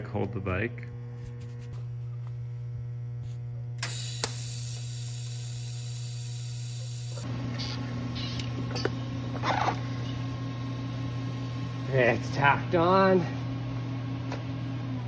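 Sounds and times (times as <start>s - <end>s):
steady electrical hum: 0.0s - 15.0s
welding arc hiss: 3.8s - 8.5s
welding arc clicks: 3.8s - 8.6s.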